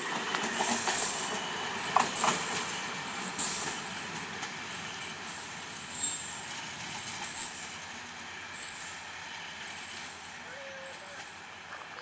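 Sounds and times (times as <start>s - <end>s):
train wheels rolling on rails: 0.0s - 12.0s
wheels clacking on rail joint: 0.0s - 12.0s
high wheel squeal: 5.8s - 6.4s.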